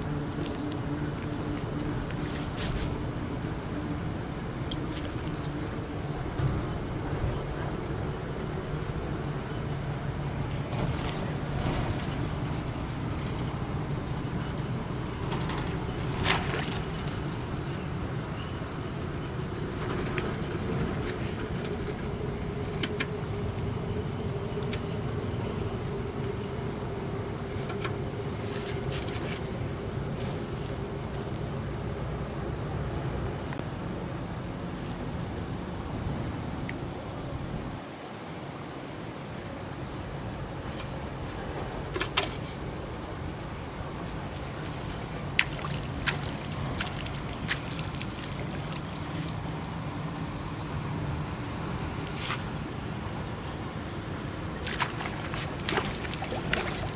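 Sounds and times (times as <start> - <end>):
crickets trilling: 0.0 - 56.9.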